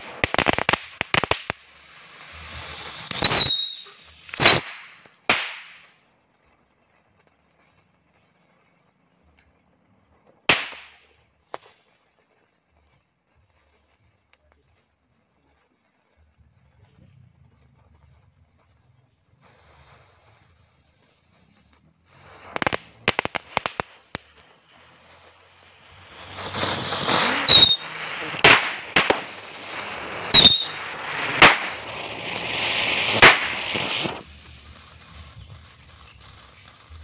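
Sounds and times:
loud firework bangs: 0.0 - 6.0, 10.4 - 11.7, 22.0 - 37.0
firecracker cracks: 0.0 - 12.2, 19.3 - 37.0
falling firework whistles: 0.0 - 37.0
fireworks fizzing hiss: 0.0 - 37.0.

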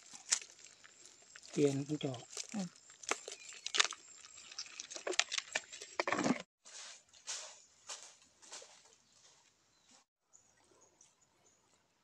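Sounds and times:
footsteps on dry leaves: 0.0 - 4.0, 6.6 - 9.5
fish and crabs knocking in bucket: 2.4 - 6.4.

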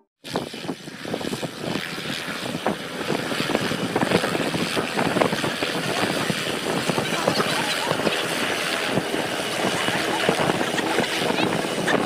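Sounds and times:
helicopter rotor and engine: 0.2 - 12.0.

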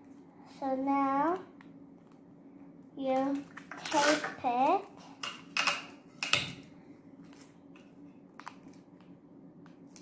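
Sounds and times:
paper and tape rustling: 3.1 - 4.9.

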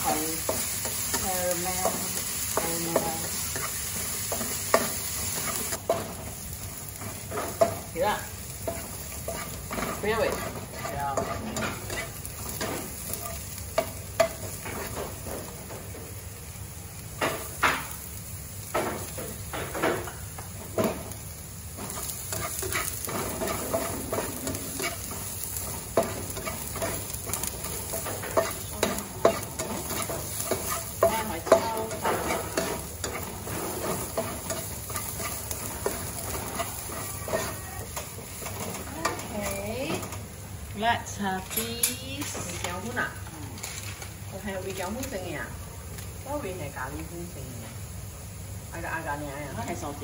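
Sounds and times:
spatula scraping a pan: 0.0 - 15.4, 21.8 - 40.2
onion and garlic sizzling in oil: 0.0 - 50.0.

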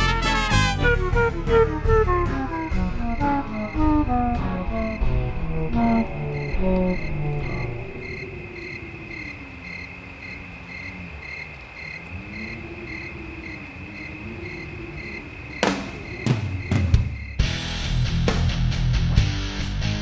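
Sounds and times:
crickets chirping: 1.0 - 18.7
low rising and falling tone: 1.1 - 9.0.

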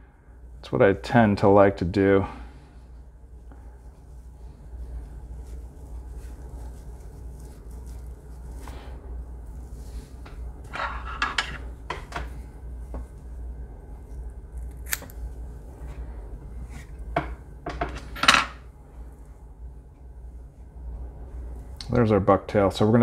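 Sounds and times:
hair rustling: 2.8 - 17.0.

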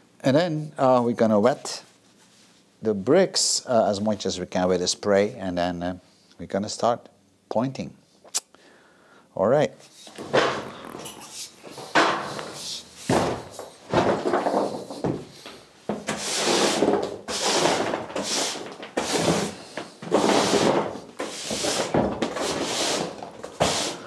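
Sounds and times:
push broom sweeping rubble: 16.1 - 24.0.

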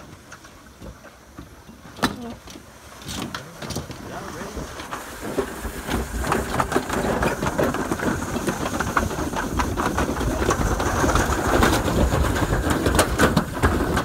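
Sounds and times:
sled rolling rumble: 0.0 - 14.0
sled clattering on metal track: 3.0 - 14.0.

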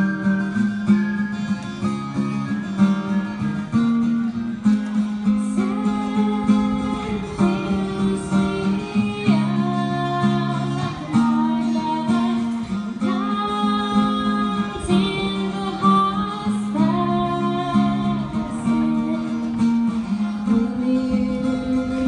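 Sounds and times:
strummed acoustic guitar: 0.0 - 22.0
woman singing: 5.3 - 22.0.

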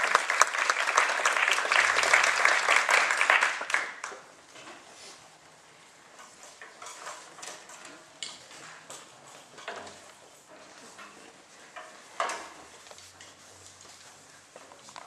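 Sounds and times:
audience applause: 0.0 - 4.1
small knocks and rustles: 6.1 - 15.0.

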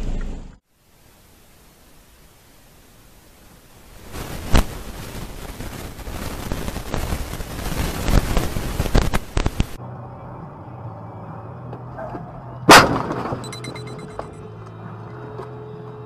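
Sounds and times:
engine hum inside cabin: 0.0 - 0.6
wind and road noise: 3.8 - 16.0
vehicle collision bang: 12.7 - 14.4.

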